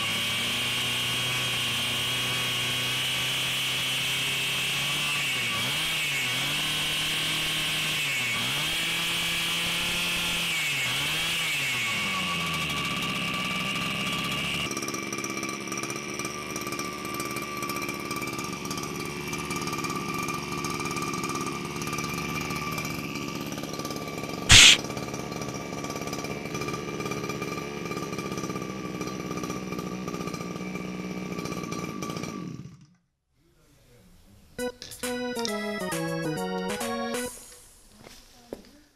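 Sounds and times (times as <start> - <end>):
sharp knock: 24.5 - 24.8.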